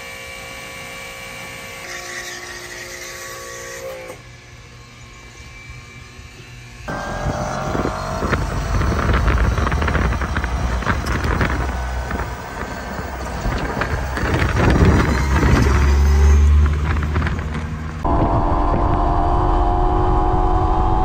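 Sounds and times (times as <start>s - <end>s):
steady low rumble: 6.9s - 21.0s
wind buffeting microphone: 6.9s - 21.0s
knocks and rattles: 7.7s - 18.0s.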